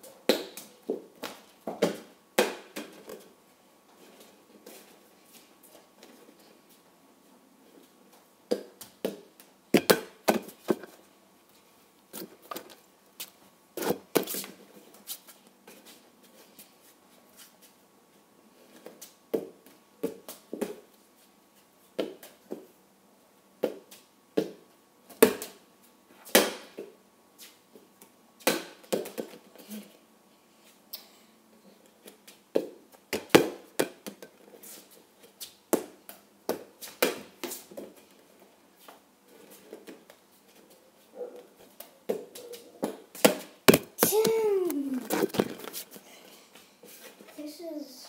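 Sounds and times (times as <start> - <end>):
plastic ball slapping and bouncing: 41.7 - 45.8.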